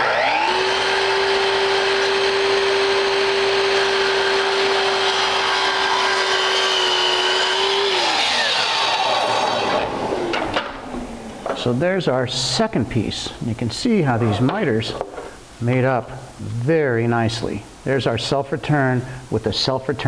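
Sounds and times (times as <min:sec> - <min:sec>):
miter saw cutting: 0:00.0 - 0:10.6
dust extractor rushing: 0:00.0 - 0:11.6.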